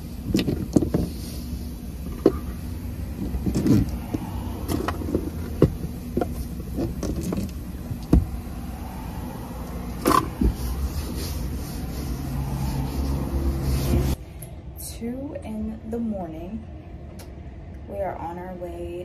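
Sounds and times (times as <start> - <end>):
towel wiping dashboard: 0.0 - 14.2
low cabin rumble: 0.0 - 19.0
items knocking and clicking: 0.3 - 1.1, 3.2 - 8.3.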